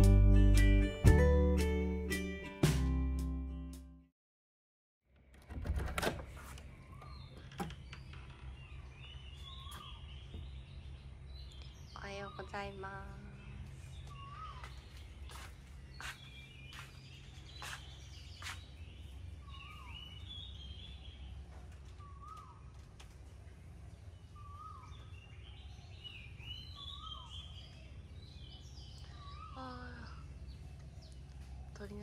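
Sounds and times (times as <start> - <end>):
birds chirping: 6.3 - 32.0
bird whistling: 24.4 - 25.2, 26.1 - 27.6.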